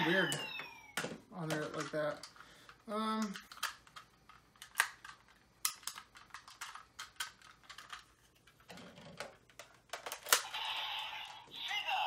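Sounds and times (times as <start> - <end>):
plastic toy clicks and snaps: 3.2 - 8.1, 9.0 - 10.6.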